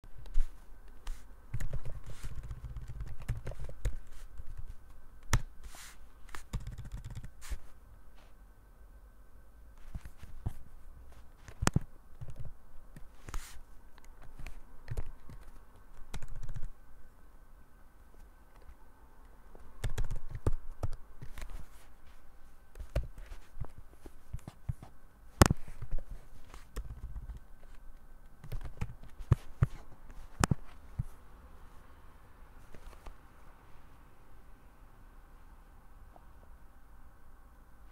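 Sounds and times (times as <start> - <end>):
typing on computer keyboard: 1.5 - 4.7, 6.4 - 7.4, 11.5 - 13.1, 14.0 - 16.7, 19.8 - 21.5, 28.4 - 29.5.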